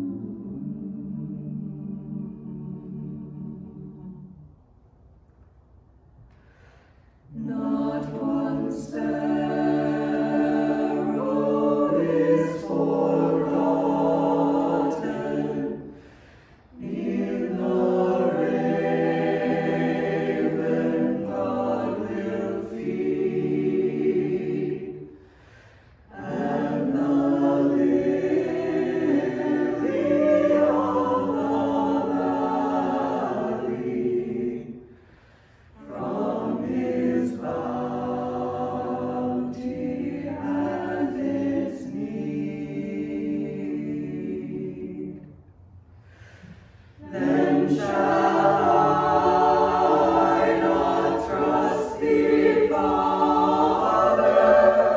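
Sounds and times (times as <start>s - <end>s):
mixed choir singing unaccompanied: 0.0s - 4.5s, 7.3s - 45.4s, 46.1s - 54.9s.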